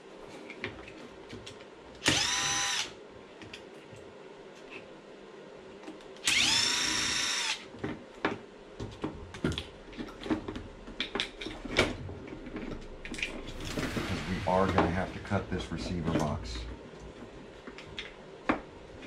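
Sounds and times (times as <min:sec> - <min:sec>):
cordless drill spinning: 0:02.0 - 0:02.9, 0:06.2 - 0:07.6.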